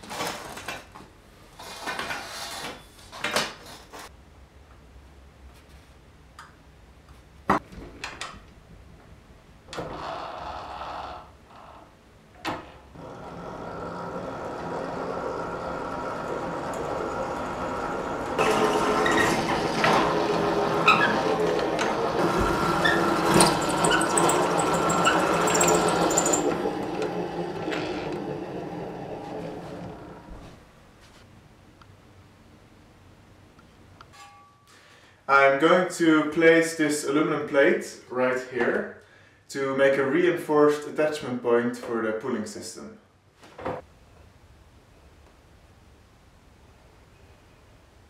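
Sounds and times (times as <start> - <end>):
drill bit cutting steel tube: 13.0 - 30.2
electric drill running: 13.0 - 30.3.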